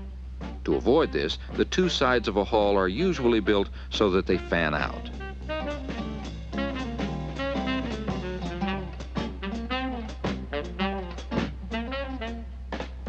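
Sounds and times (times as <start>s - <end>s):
drum kit beat: 0.0s - 2.4s, 4.3s - 13.0s
constant low hum: 0.0s - 13.0s
jazz guitar: 0.0s - 13.0s.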